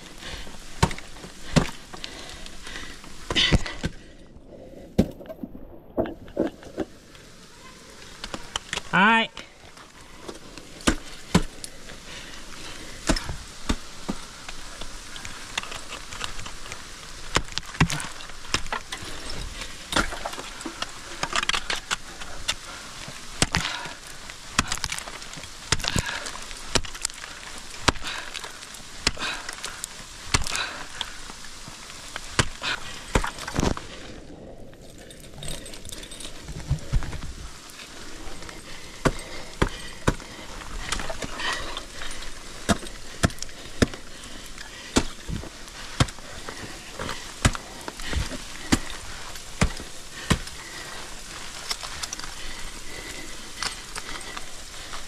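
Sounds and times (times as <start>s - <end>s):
ice axe chopping into ice: 5.0s - 6.1s, 13.0s - 14.2s, 17.3s - 18.8s, 23.4s - 31.0s, 32.2s - 33.8s, 44.8s - 50.7s.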